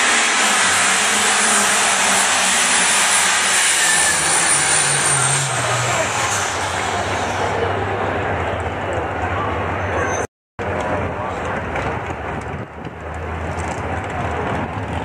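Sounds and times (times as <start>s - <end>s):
high whine: 0.0s - 9.0s
tractor engine running at full power: 0.0s - 9.9s, 10.6s - 15.0s.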